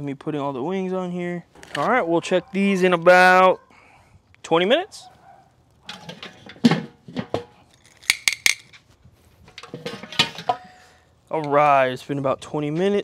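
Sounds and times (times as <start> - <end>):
metal lid clinking on grill: 5.8 - 7.6, 9.5 - 11.6.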